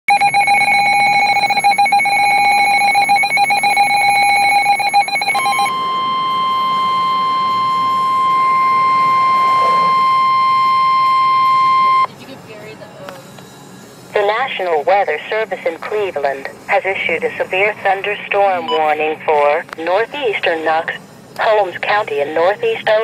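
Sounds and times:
steady warning alert tone: 0.1 - 12.1
warbling alarm: 0.1 - 12.1.

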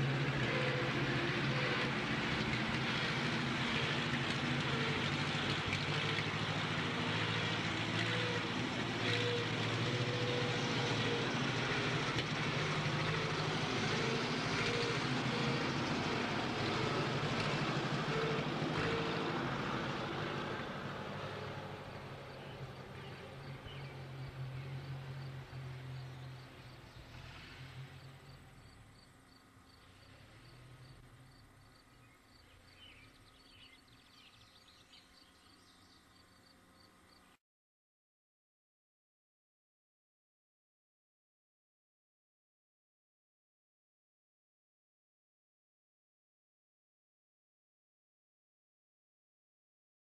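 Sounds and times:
truck engine driving past: 0.0 - 37.2.

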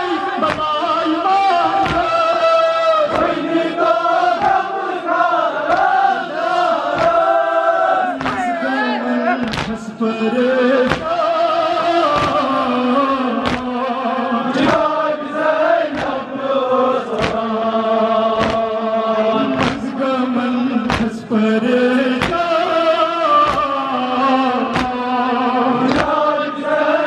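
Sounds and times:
men chanting a mourning lament: 0.0 - 27.0
hands striking chests: 0.4 - 0.8, 1.8 - 2.2, 6.9 - 7.2, 8.2 - 8.6, 9.4 - 9.8, 10.8 - 11.2, 11.8 - 12.5, 13.4 - 13.8, 15.9 - 16.2, 17.2 - 17.5, 18.4 - 18.7, 19.6 - 19.9, 20.9 - 21.2, 22.2 - 22.6, 23.4 - 23.8, 24.6 - 25.0, 25.9 - 26.2.

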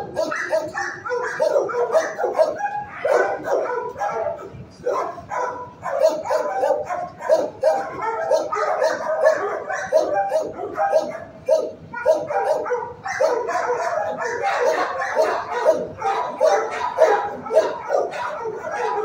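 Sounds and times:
many dogs barking: 0.0 - 19.0.

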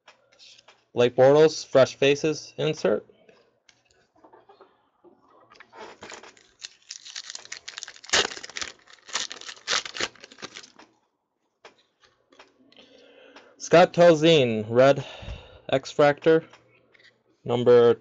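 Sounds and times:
foil wrapper tearing and crinkling: 6.3 - 10.8.

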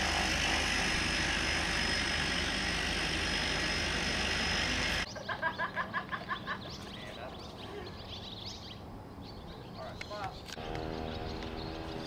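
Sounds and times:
turboprop engine running: 0.0 - 5.1.

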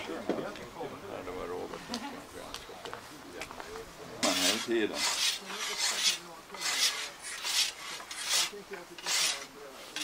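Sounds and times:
scythe blade rasping strokes: 4.2 - 10.0.

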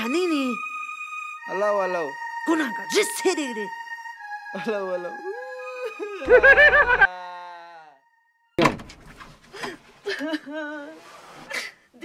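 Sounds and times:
wavering musical note: 0.0 - 7.0
woman sobbing: 5.2 - 7.2, 10.0 - 11.7
wooden door banging shut: 8.6 - 9.4.

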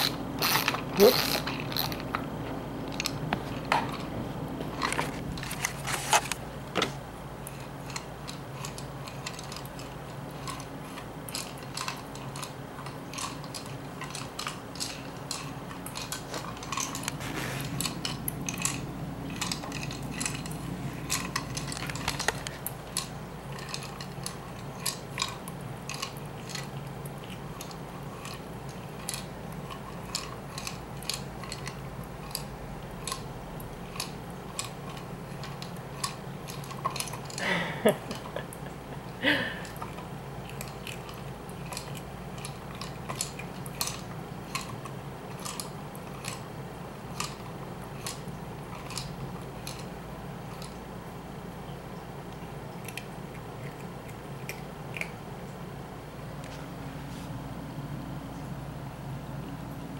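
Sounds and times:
dry treats rattling: 0.0 - 2.2
low steady hum: 0.0 - 59.9.

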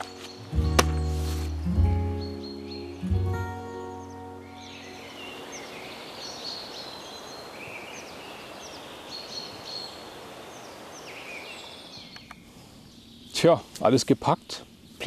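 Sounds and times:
birds chirping and trilling: 0.0 - 15.0
steady background hiss: 0.0 - 15.0.

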